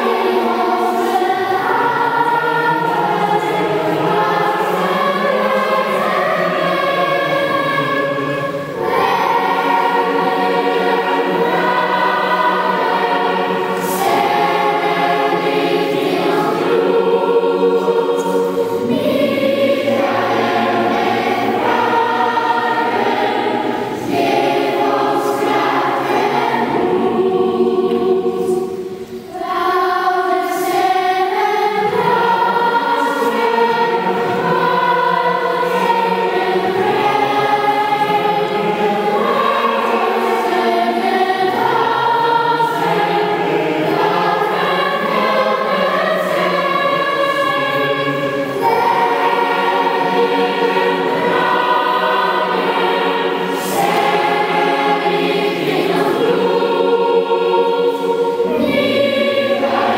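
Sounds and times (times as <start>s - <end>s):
children's choir singing: 0.0s - 59.9s.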